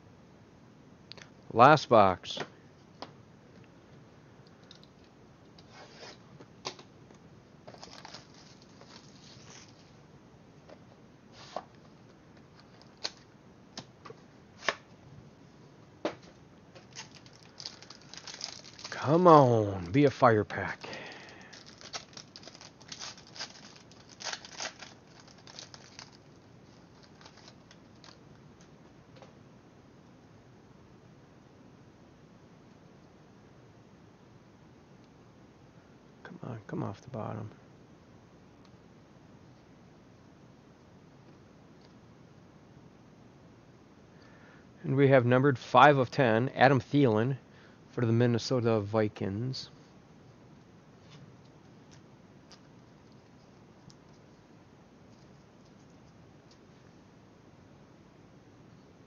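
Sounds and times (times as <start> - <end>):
packaging rustling and tearing: 7.7 - 9.9, 16.8 - 28.2.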